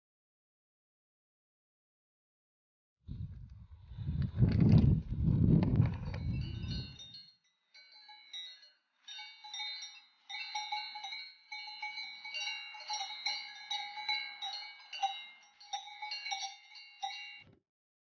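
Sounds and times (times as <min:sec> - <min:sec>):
cowbells clanking: 0:05.9 - 0:17.5.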